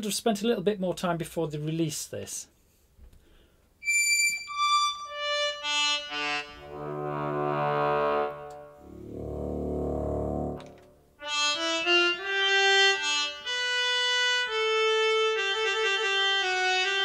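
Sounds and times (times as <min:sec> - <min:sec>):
slow reedy electronic melody: 0:03.8 - 0:17.0
low buzzy held note: 0:06.7 - 0:11.1.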